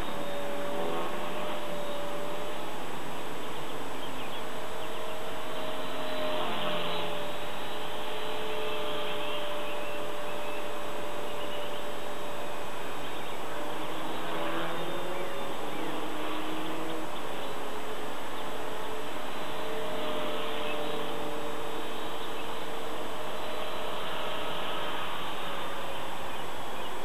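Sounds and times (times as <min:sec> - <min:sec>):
rc helicopter whine: 0:00.0 - 0:27.0.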